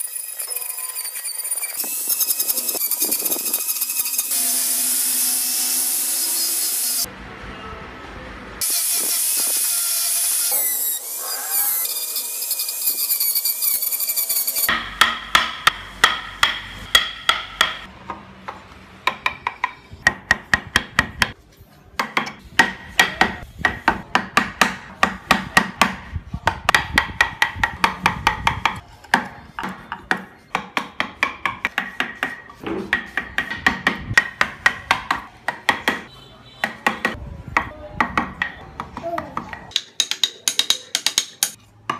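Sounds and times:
mallet striking chisel into wood: 14.7s - 18.2s, 19.0s - 21.4s, 22.0s - 36.0s, 36.6s - 41.9s.

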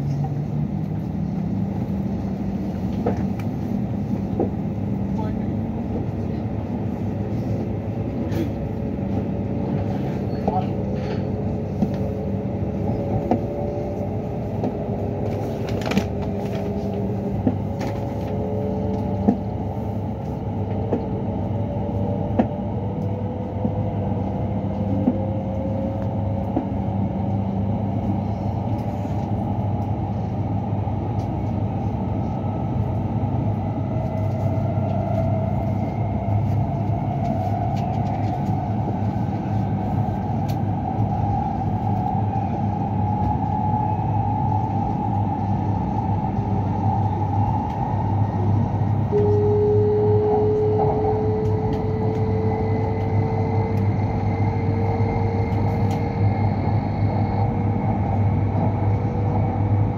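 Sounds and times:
train rumble and hum: 0.0s - 59.9s
faint whining tones: 30.8s - 59.9s.

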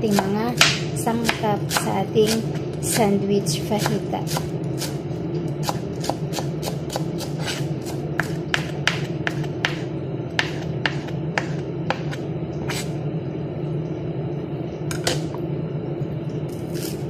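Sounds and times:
knife chopping on cutting board: 5.6s - 9.8s, 10.4s - 12.8s.

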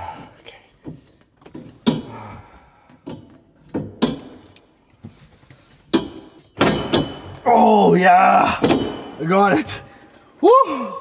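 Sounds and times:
metal tube knocking against mounts: 3.0s - 4.6s, 5.9s - 7.4s, 8.6s - 9.2s.

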